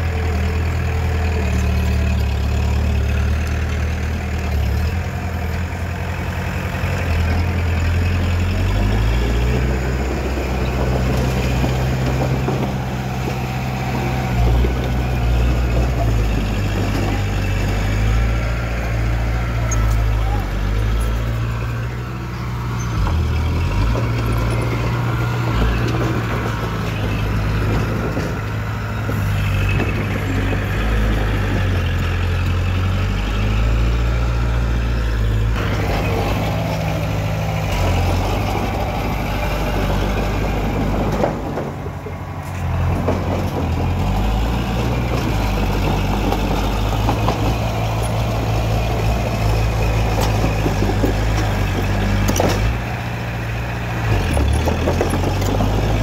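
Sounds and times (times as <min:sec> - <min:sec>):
bulldozer diesel engine under load: 0:00.0 - 0:56.0.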